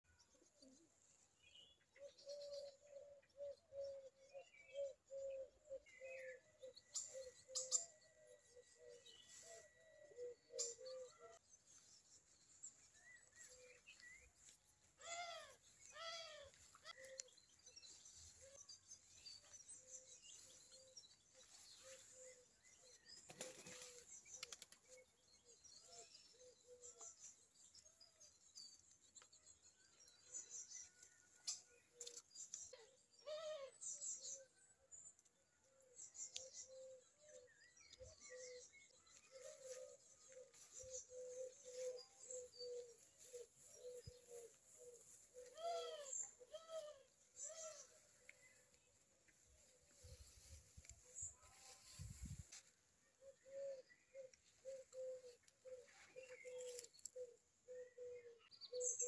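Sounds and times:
bird chirps: 0.1s - 59.0s
dove cooing: 2.0s - 11.4s, 15.0s - 17.3s, 20.7s - 25.1s, 33.2s - 33.8s, 39.3s - 48.6s, 53.2s - 59.0s.

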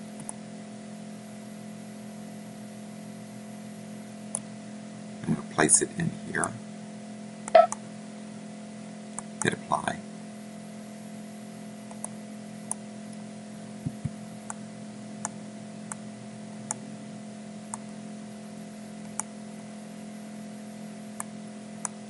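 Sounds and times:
steady electrical hum: 0.0s - 22.0s
computer mouse clicking: 0.2s - 0.4s, 11.9s - 12.8s, 19.0s - 19.3s
dull low thumps: 13.8s - 14.2s.

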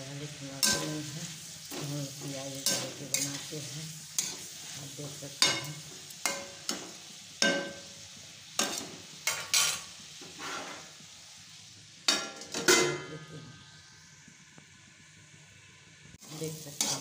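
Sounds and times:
frying sizzle: 0.0s - 17.0s
metal spatula scraping pan: 0.6s - 7.9s, 8.6s - 11.0s.

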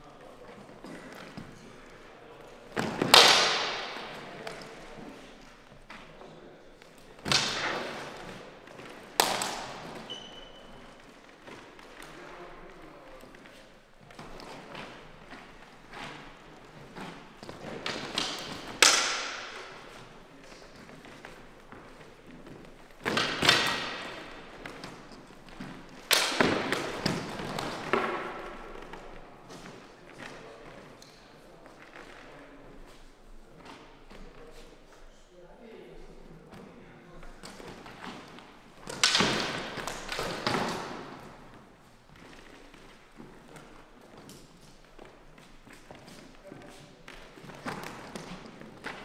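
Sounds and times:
plastic swords striking: 2.8s - 4.3s, 7.2s - 8.4s, 9.2s - 10.1s, 17.8s - 20.0s, 25.9s - 28.5s, 38.8s - 41.2s.

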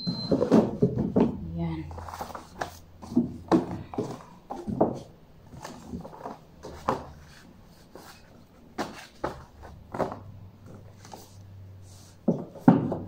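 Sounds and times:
books knocking on wooden shelf: 0.2s - 1.5s, 2.2s - 7.4s, 8.8s - 10.9s, 12.2s - 13.0s.

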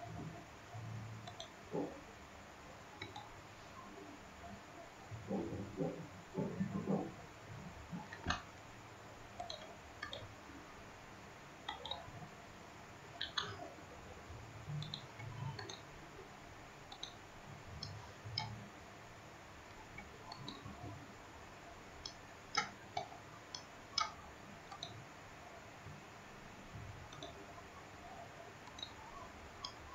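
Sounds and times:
computer mouse clicks: 0.1s - 2.0s, 2.9s - 7.2s, 7.9s - 8.7s, 9.3s - 10.4s, 11.6s - 12.2s, 13.2s - 13.7s, 14.6s - 15.9s, 16.8s - 18.7s, 19.7s - 21.0s, 22.0s - 25.1s, 26.6s - 29.9s.

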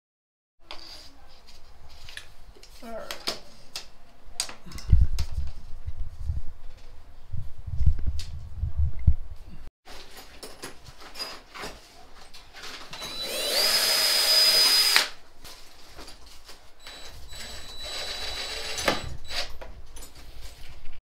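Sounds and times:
cordless drill whining: 12.9s - 15.2s, 16.8s - 19.6s.

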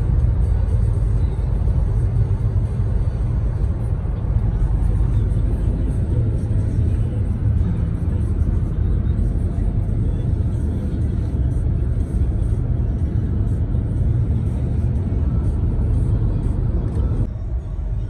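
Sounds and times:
car road and wind noise: 0.0s - 18.0s.

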